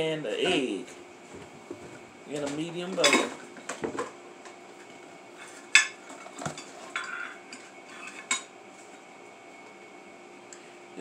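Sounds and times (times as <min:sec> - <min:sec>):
kitchenware knocks and clinks: 0:02.4 - 0:04.1.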